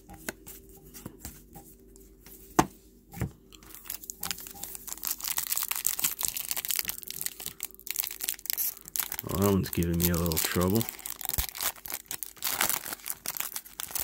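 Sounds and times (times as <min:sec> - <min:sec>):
plastic wrapper crinkling and tearing: 0:03.6 - 0:14.0.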